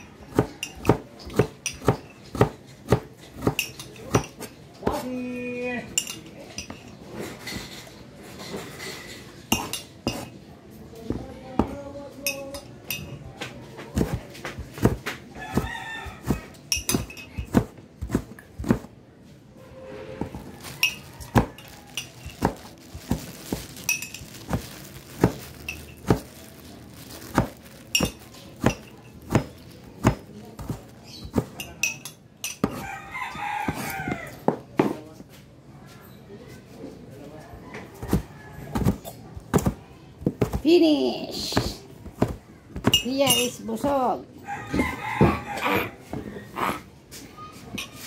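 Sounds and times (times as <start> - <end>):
rooster crowing: 32.7 - 34.4, 44.4 - 46.0.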